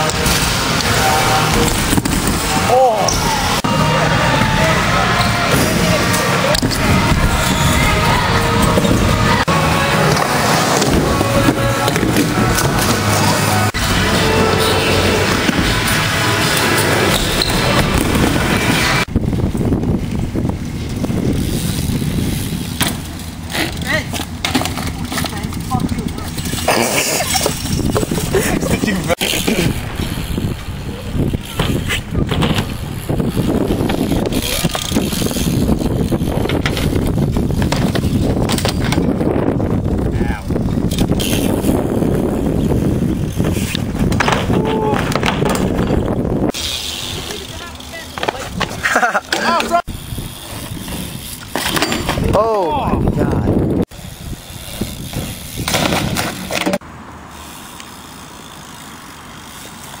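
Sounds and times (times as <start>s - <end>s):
bike tyres rolling on concrete: 0.0s - 60.0s
wind on microphone: 4.4s - 15.8s, 16.9s - 22.8s, 25.7s - 47.2s, 52.0s - 56.4s.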